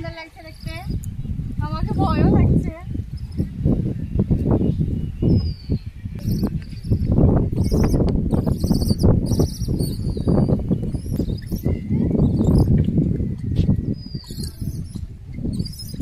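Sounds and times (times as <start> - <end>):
birds chirping: 0.0 - 16.0
falling bird whistle: 7.6 - 12.8, 13.4 - 16.0.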